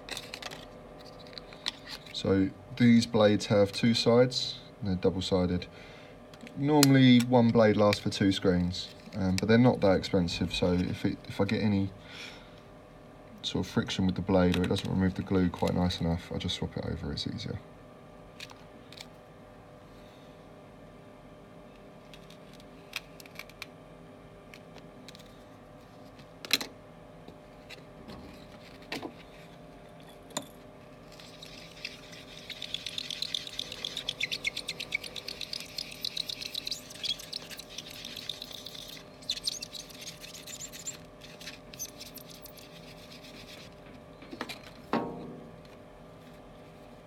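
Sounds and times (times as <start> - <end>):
sponge squeaky rubbing on glass: 31.2 - 43.7.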